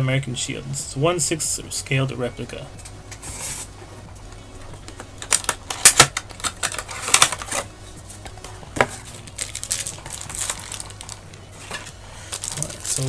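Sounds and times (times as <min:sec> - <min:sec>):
plastic packaging crinkling: 0:05.1 - 0:13.0.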